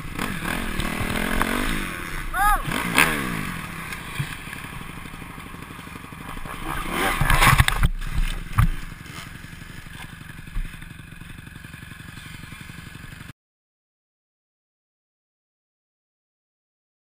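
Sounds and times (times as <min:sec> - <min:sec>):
dirt bike engine revving: 0:00.0 - 0:13.3.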